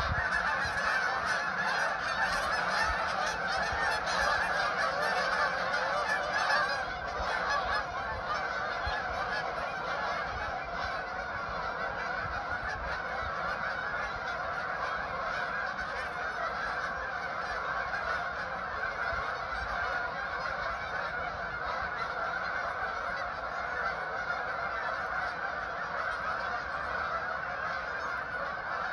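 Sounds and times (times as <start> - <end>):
flock of geese honking: 0.0 - 28.9.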